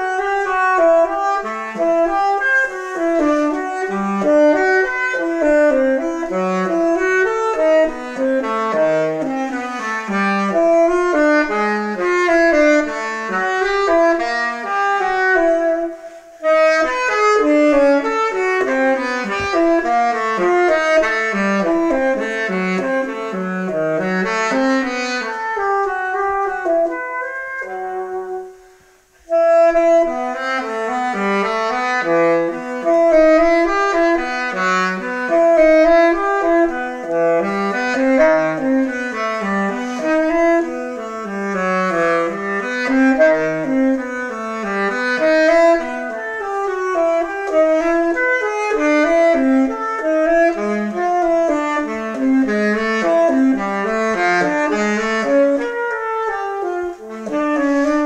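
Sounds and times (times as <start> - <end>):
solo saxophone playing: 0.0 - 58.0.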